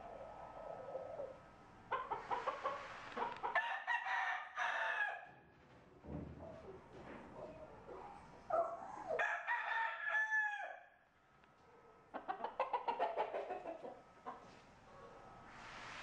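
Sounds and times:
chicken clucking: 0.0 - 3.6, 12.1 - 14.6
rooster crowing: 3.6 - 5.3, 9.2 - 10.9.

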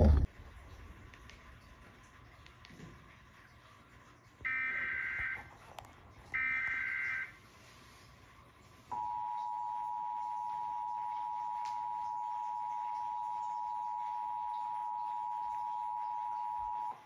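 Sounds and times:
two-tone alert signal: 9.0 - 17.0.

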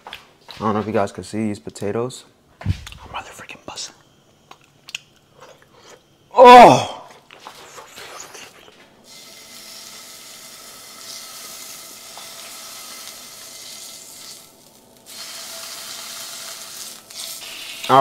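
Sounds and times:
steak sizzling in a skillet: 9.0 - 18.0.

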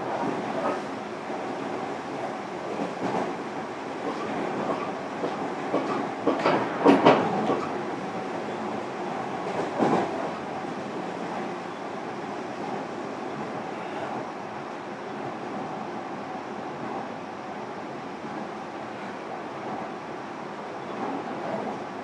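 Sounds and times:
train wheels rumbling on rail: 0.0 - 22.0
sharp clacks of train wheels: 2.7 - 3.4, 4.0 - 7.8, 9.4 - 10.4.

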